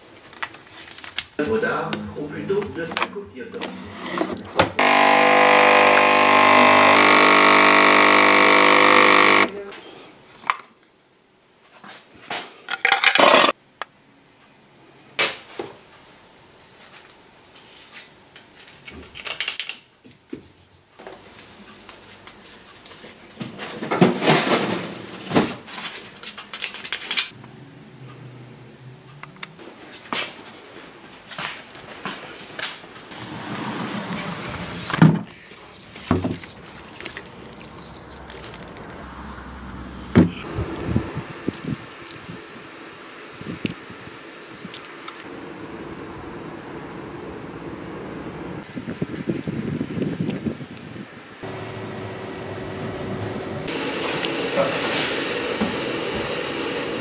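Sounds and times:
coffee machine pump buzzing: 4.8s - 9.6s.

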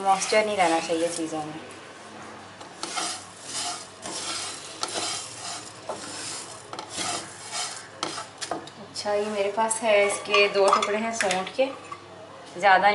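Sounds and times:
spatula scraping seeds in a pan: 0.0s - 1.5s, 2.6s - 8.6s
seeds rattling against pan: 2.7s - 8.5s.

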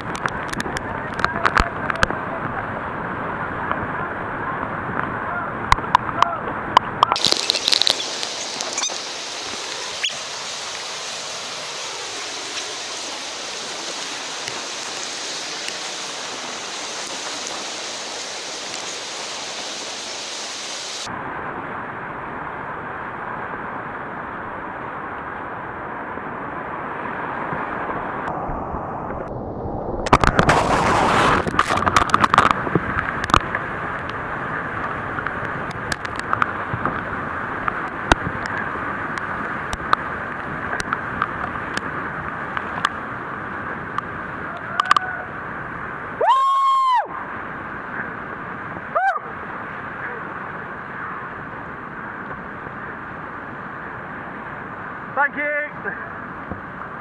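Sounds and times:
water splashing on camera: 0.0s - 2.7s, 5.0s - 21.1s, 27.4s - 45.4s
whitewater rushing: 0.0s - 29.3s, 30.0s - 57.0s.

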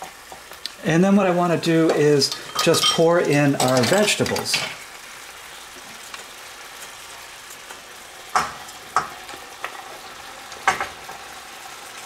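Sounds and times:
chicken sizzling in oil: 0.0s - 12.0s
vegetables clattering into pan: 1.8s - 5.0s, 7.6s - 12.0s.

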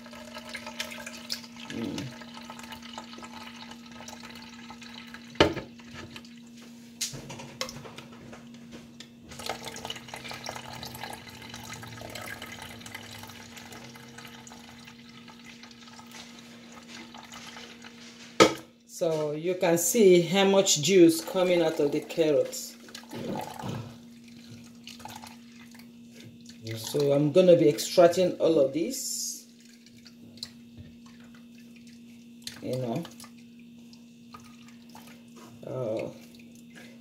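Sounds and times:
juice dripping into plastic jug: 0.0s - 6.5s, 9.3s - 17.5s, 22.8s - 27.2s, 29.6s - 36.8s
low steady hum: 0.0s - 37.0s.

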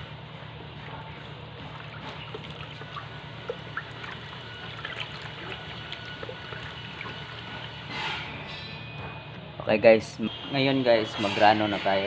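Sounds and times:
liquid trickling and sloshing: 0.8s - 8.4s.

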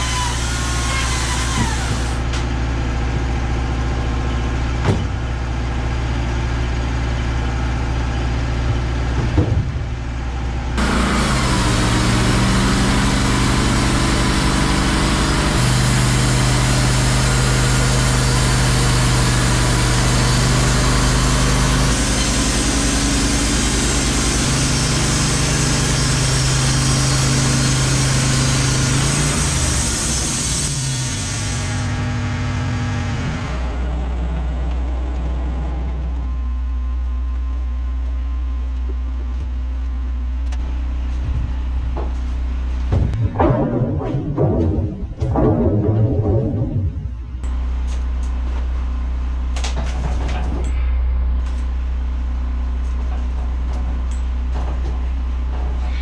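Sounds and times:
band saw cutting log: 0.0s - 2.3s, 10.8s - 31.8s
sawmill engine running: 0.0s - 36.6s, 42.9s - 48.3s.

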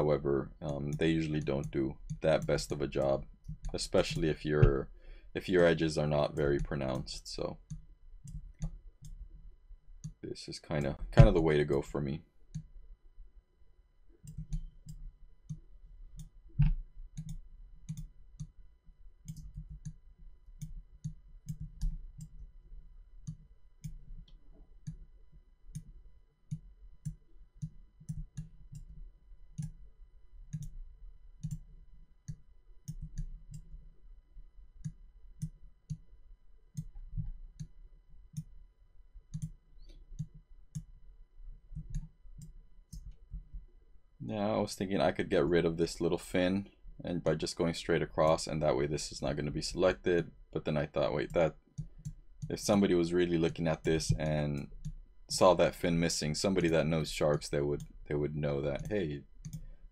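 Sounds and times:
computer mouse clicks: 7.6s - 9.2s, 14.2s - 18.6s, 19.2s - 20.0s, 20.6s - 22.5s, 23.2s - 25.1s, 25.7s - 29.8s, 30.5s - 30.8s, 31.4s - 33.9s, 34.8s - 36.1s, 36.7s - 38.5s, 39.3s - 41.0s, 41.7s - 43.6s, 51.2s - 52.8s, 54.0s - 55.0s, 58.8s - 59.9s.

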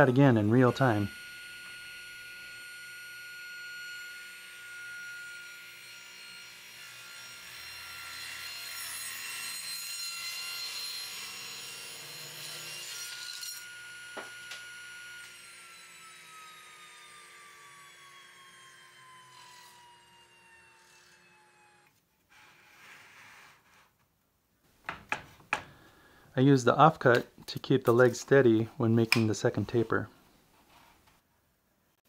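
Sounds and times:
table saw cutting wood: 0.0s - 23.9s.

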